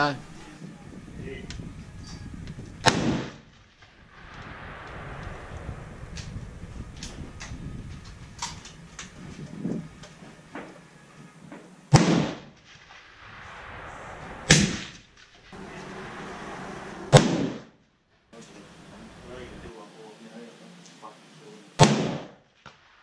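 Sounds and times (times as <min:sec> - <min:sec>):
rifle shots with echo: 0:02.8 - 0:03.4, 0:11.9 - 0:12.5, 0:17.1 - 0:17.6, 0:21.8 - 0:22.4.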